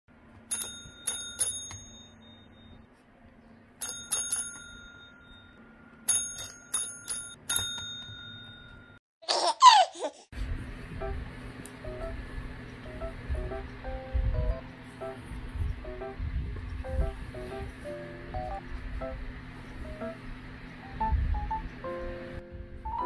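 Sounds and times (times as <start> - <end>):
service bell ringing: 0.5 - 2.8, 3.8 - 9.0.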